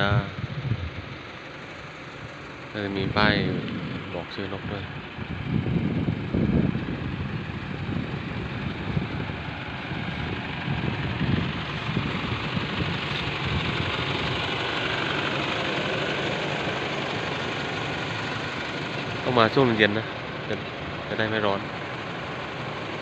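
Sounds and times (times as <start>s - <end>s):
wind rumble on microphone: 0.0s - 1.3s, 2.8s - 14.6s
car road and wind noise: 0.0s - 23.0s.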